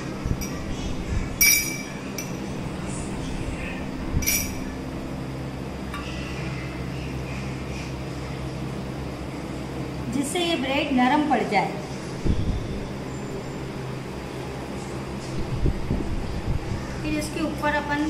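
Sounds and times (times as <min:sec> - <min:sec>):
low steady hum: 0:00.0 - 0:18.0
spoon clinking against glass: 0:01.4 - 0:02.4, 0:04.2 - 0:04.7.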